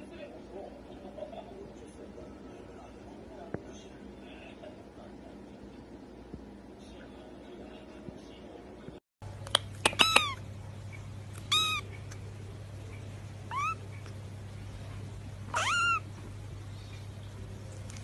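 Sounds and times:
steady low hum: 0.0 - 18.0
kitten mewing: 9.8 - 10.5, 11.4 - 12.0, 13.5 - 14.0, 15.5 - 16.2.

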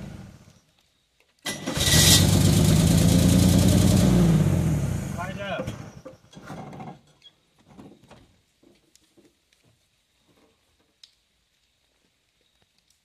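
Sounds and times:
truck engine: 0.0 - 0.5, 1.5 - 7.0.

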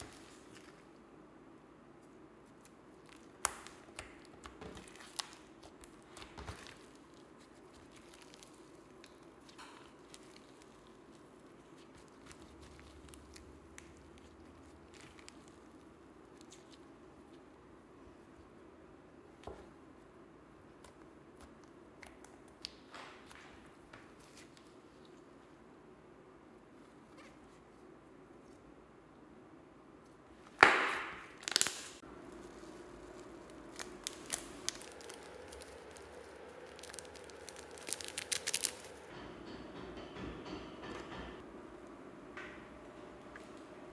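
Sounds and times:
slime being handled: 2.4 - 17.4, 30.4 - 39.1
low steady hum: 31.2 - 43.9
slime clicking and popping: 33.6 - 39.0.

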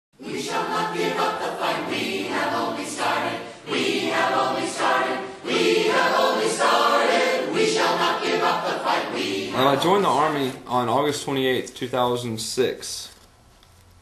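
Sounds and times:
choir singing: 0.2 - 10.6.

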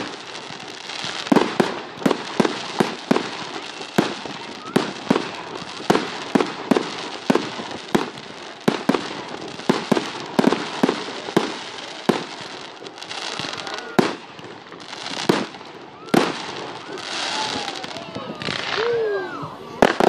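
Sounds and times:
fireworks bangs: 0.0 - 20.0
fireworks crackling hiss: 0.0 - 20.0.

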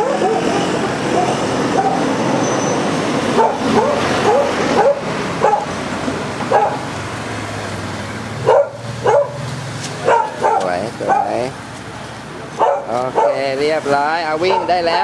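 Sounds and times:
dog yelping and whining: 0.0 - 2.8, 3.4 - 5.7.

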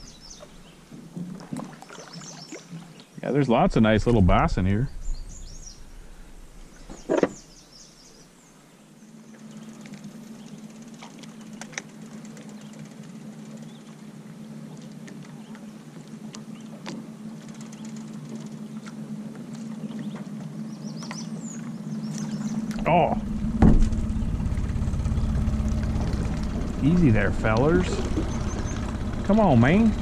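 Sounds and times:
birds chirping: 0.0 - 30.0
boat motor humming: 0.0 - 30.0
thump: 23.6 - 24.0.

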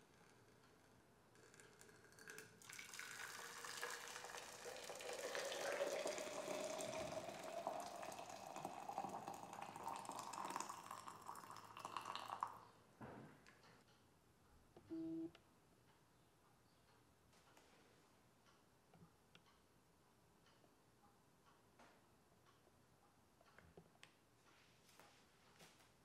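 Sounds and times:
water pouring into pitcher: 2.1 - 12.6.

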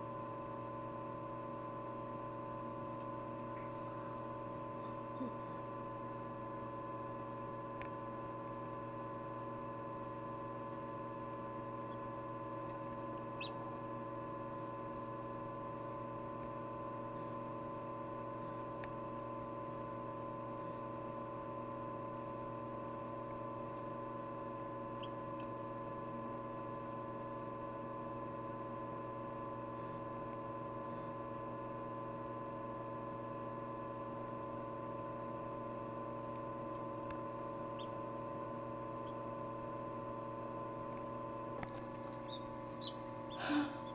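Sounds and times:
incubator electrical hum: 0.0 - 43.9
chick peeping: 13.2 - 13.7, 25.0 - 25.5, 37.2 - 38.1, 39.0 - 39.2, 42.2 - 43.9.

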